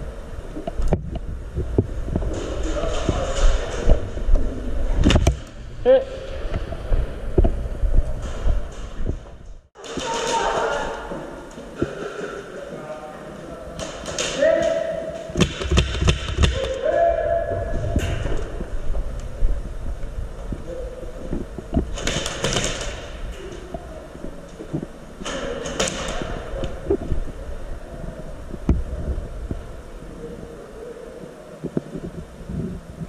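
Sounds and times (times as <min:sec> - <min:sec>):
footsteps: 0:00.5 - 0:16.8.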